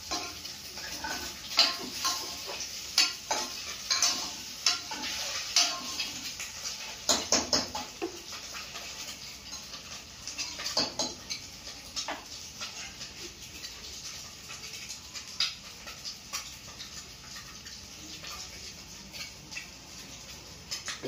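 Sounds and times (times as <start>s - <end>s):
metal spoon scraping a pot: 0.1s - 6.4s.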